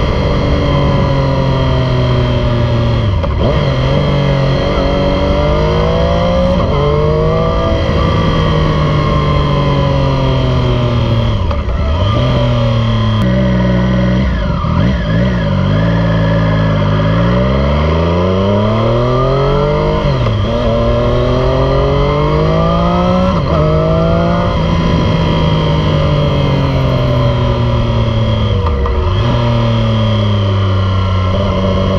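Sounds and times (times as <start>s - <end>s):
motorcycle engine revving: 0.0s - 31.9s.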